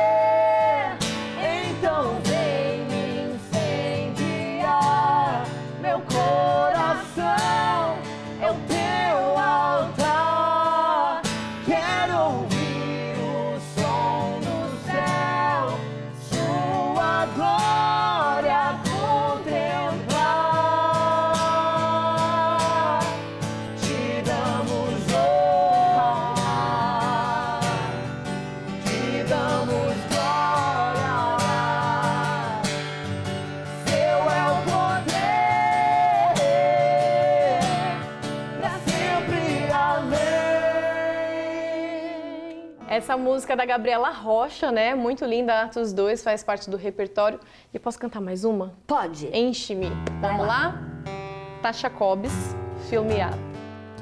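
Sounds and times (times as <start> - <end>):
man and woman singing: 0.0 - 42.9
acoustic guitar strumming: 0.0 - 43.4, 49.8 - 54.0.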